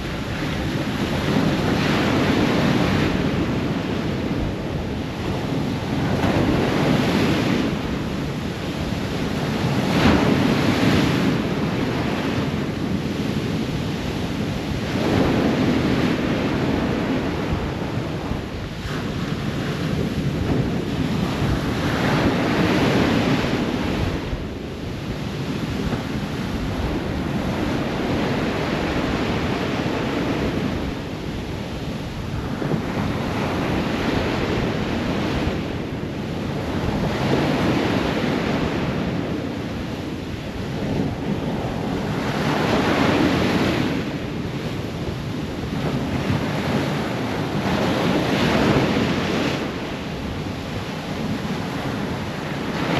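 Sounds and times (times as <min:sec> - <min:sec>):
ocean waves breaking on shore: 0:00.0 - 0:52.9.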